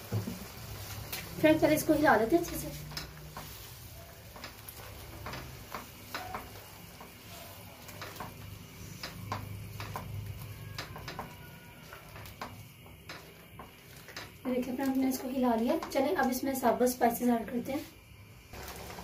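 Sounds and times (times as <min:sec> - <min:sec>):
low sizzle of frying: 0:00.0 - 0:19.0
spatula tapping and scraping pan: 0:01.9 - 0:16.4.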